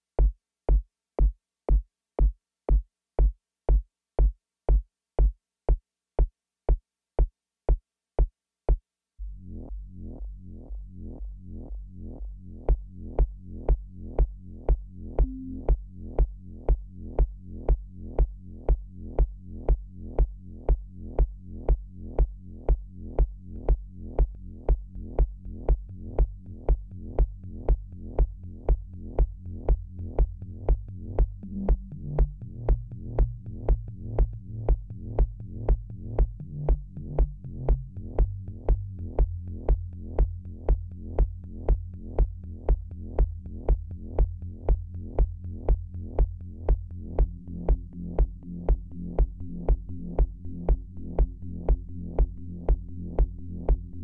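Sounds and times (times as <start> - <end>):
kick drum: 0.2 - 8.9, 9.7 - 54.0
synth bass line: 9.2 - 21.2, 23.0 - 54.0.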